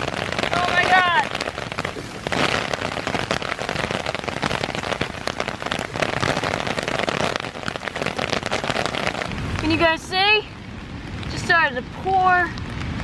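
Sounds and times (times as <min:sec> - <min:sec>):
heavy rain hissing: 0:00.0 - 0:13.0
raindrops tapping close by: 0:00.0 - 0:13.0.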